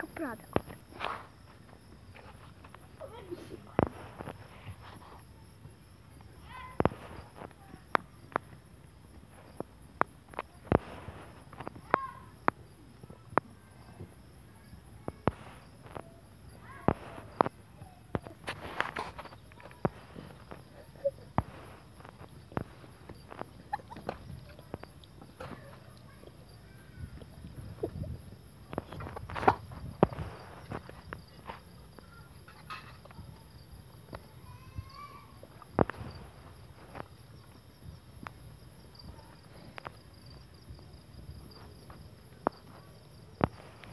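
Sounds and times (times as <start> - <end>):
footsteps and shuffling: 0.0 - 8.6, 15.3 - 32.1
crickets trilling: 0.0 - 43.9.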